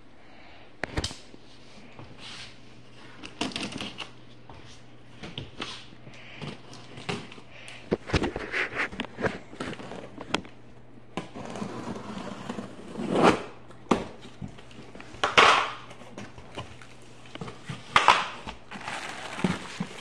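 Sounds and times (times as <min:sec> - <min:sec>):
cardboard scraping and rustling: 0:08.0 - 0:10.4, 0:11.2 - 0:13.4, 0:16.0 - 0:20.0.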